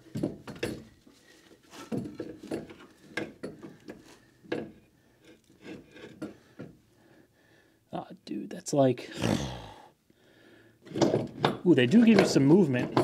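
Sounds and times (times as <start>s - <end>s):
metal knocks and scrapes: 10.9s - 13.0s.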